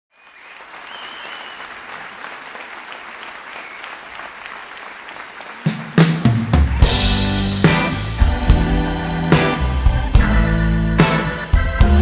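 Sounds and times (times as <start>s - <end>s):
audience applauding: 0.1s - 8.2s
live band with heavy bass: 5.6s - 12.0s.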